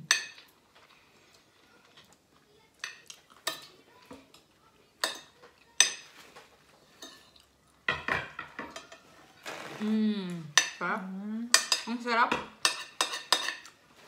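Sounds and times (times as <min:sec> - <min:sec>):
cutlery clinking on plates: 0:00.0 - 0:00.6, 0:02.8 - 0:09.2, 0:11.5 - 0:13.8.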